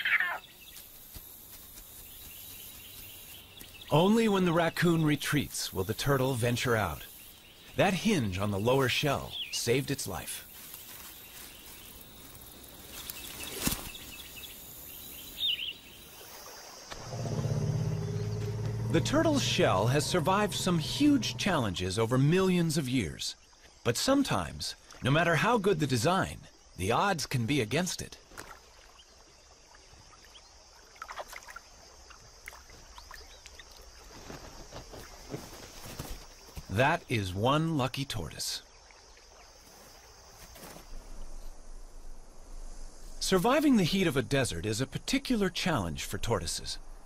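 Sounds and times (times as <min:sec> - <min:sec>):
faint high bird chirps: 0:12.9 - 0:16.0
low steady hum: 0:17.1 - 0:22.4
water sloshing and splashing: 0:28.2 - 0:36.6.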